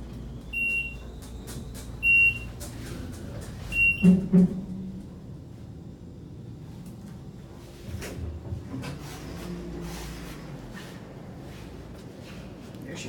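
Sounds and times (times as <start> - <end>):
elevator short high beeps: 0.4 - 2.7, 3.7 - 4.3.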